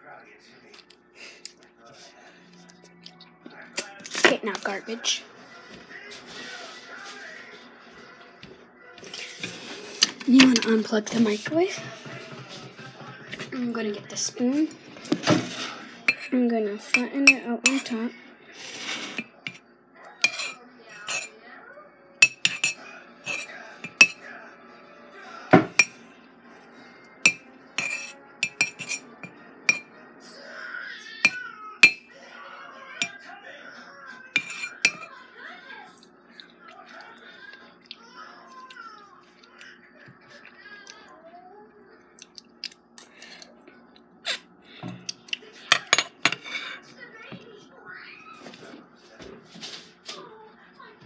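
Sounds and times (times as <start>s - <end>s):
spoon scraping ceramic mug: 15.0s - 19.6s, 20.2s - 21.3s, 22.2s - 24.2s, 27.3s - 29.8s, 31.2s - 32.0s, 34.4s - 35.1s, 45.7s - 46.8s
metal spoon tapping ceramic mug: 27.3s - 29.0s, 34.4s - 35.0s
chewing: 35.9s - 41.2s, 42.1s - 44.1s.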